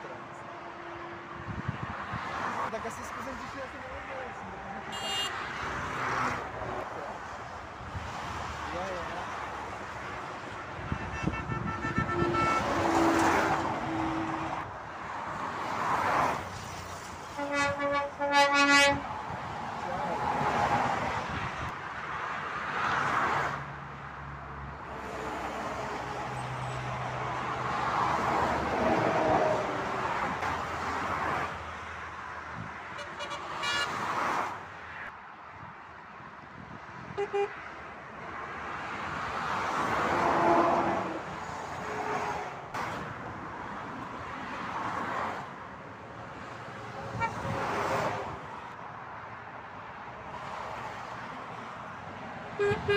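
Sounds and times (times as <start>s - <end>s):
motorway traffic rushing by: 0.0s - 52.9s
vehicle horn blasts: 4.5s - 5.7s, 10.8s - 13.1s, 17.4s - 19.0s, 33.0s - 34.0s, 37.2s - 37.6s, 47.2s - 47.6s, 52.6s - 52.9s.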